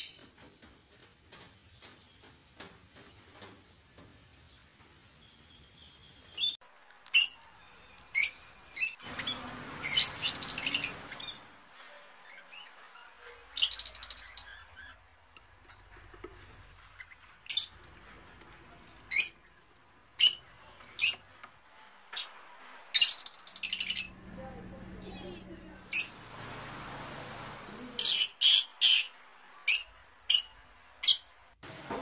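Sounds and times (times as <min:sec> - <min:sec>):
parrots chirping: 0:06.4 - 0:17.8, 0:20.2 - 0:21.3, 0:22.2 - 0:26.2, 0:28.0 - 0:31.4.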